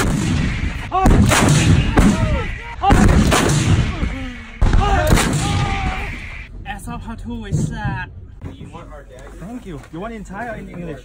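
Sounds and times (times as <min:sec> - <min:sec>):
artillery blasts with low rumble: 0:00.0 - 0:06.7
people shouting and whooping: 0:01.8 - 0:03.2, 0:03.8 - 0:06.3.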